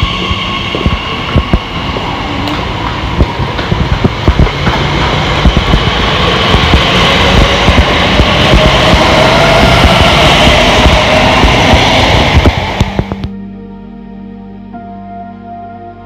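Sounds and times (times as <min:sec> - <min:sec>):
train wheel clatter: 0:00.0 - 0:13.2
electric train passing: 0:00.0 - 0:13.3
rising train whine: 0:00.0 - 0:14.8.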